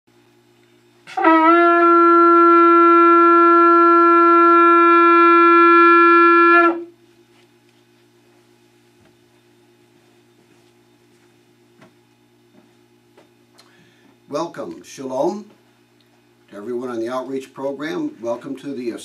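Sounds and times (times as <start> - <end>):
shofar blast: 1.0 - 7.0.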